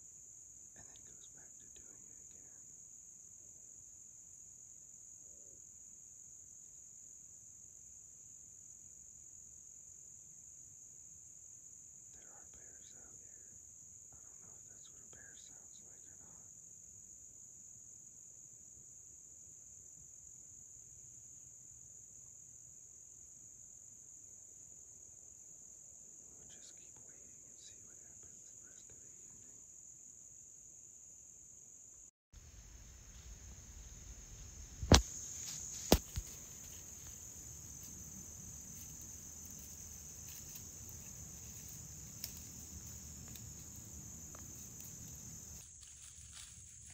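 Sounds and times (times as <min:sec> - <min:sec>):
crickets chirping: 0:00.0 - 0:46.9
low background noise: 0:00.0 - 0:46.9
sharp knocks: 0:35.8 - 0:36.4.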